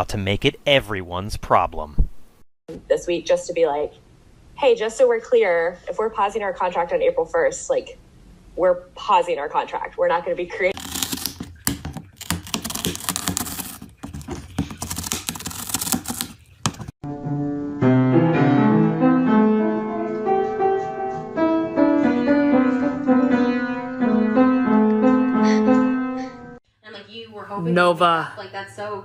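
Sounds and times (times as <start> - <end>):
cat gnawing cardboard: 10.8 - 16.9
piano music: 17.0 - 26.6.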